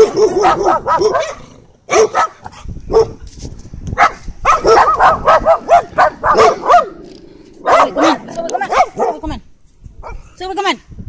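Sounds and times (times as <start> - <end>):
dog barking: 0.0 - 3.2, 4.0 - 7.0, 7.6 - 9.3, 10.0 - 10.3.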